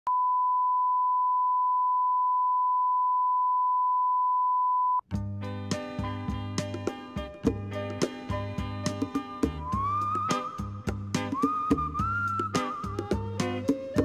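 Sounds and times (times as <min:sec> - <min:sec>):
instrumental music with a beat: 0:05.1 - 0:14.0.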